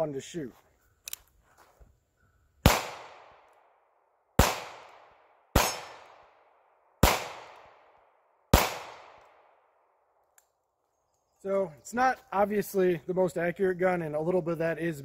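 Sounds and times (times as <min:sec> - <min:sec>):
revolver gunshots: 0:02.6 - 0:03.5, 0:04.4 - 0:09.6.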